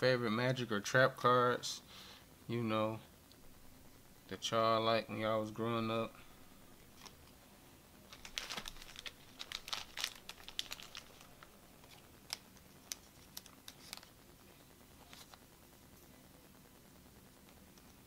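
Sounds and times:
plastic sleeves crinkling: 0:06.9 - 0:07.4, 0:08.1 - 0:14.2, 0:15.0 - 0:15.4.

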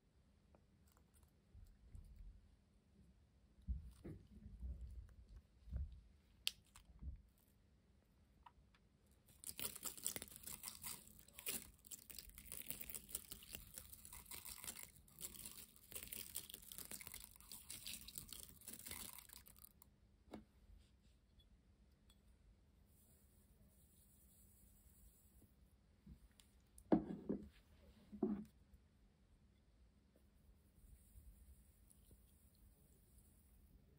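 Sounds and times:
beads pattering onto slime: 0:09.3 - 0:19.8.

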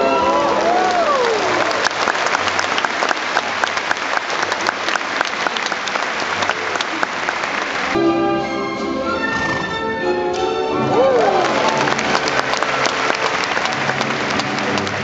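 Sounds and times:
music: 0:00.0 - 0:00.8, 0:07.9 - 0:15.0
audience applauding: 0:00.0 - 0:08.0, 0:10.8 - 0:15.0.

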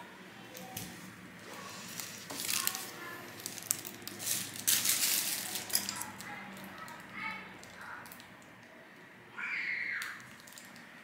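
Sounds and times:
plastic or paper crinkling: 0:01.5 - 0:07.0.

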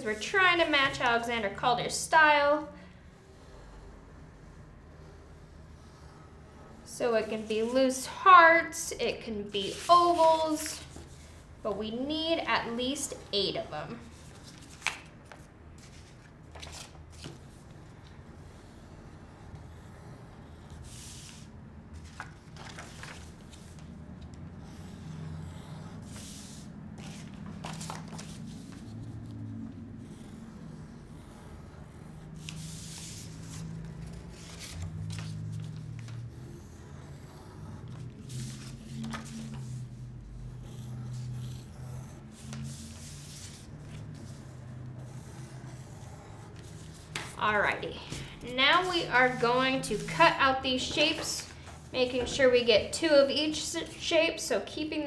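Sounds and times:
pen drawing on paper: 0:18.3 - 0:21.5, 0:24.5 - 0:27.2, 0:28.5 - 0:33.4, 0:36.3 - 0:38.9, 0:39.6 - 0:47.7
paper sliding across table: 0:20.4 - 0:23.9, 0:26.1 - 0:29.0, 0:32.0 - 0:36.2, 0:37.2 - 0:40.0, 0:40.7 - 0:47.4.

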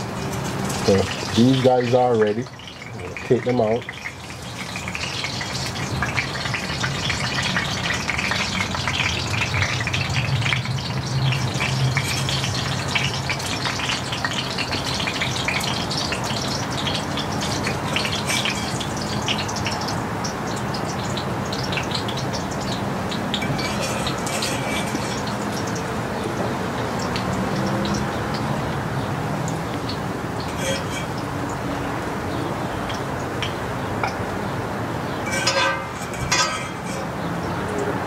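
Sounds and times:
oil pops and crackles: 0:00.0 - 0:28.5
oil sizzling with frying food: 0:00.0 - 0:38.0.

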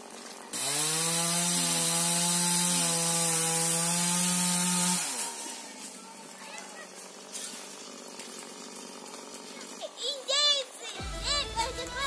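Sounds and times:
chainsaw at full throttle: 0:00.4 - 0:09.8.

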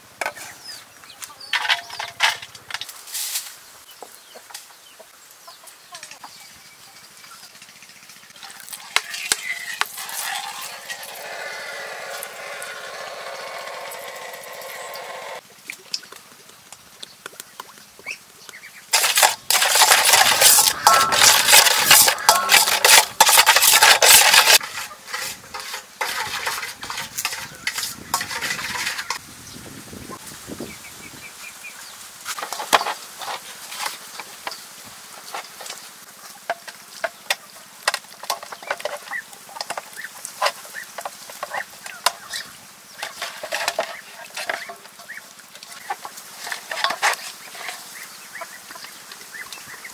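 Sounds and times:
stirring in a metal bowl: 0:08.3 - 0:15.4, 0:18.9 - 0:29.2, 0:43.0 - 0:48.1.

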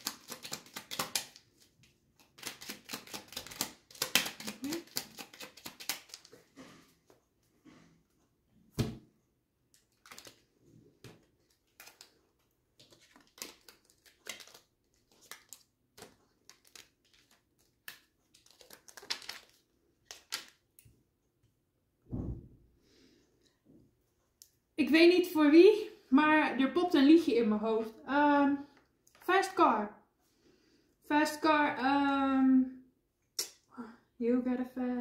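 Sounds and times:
cards shuffling: 0:00.0 - 0:06.5, 0:09.8 - 0:10.4, 0:11.0 - 0:20.6.

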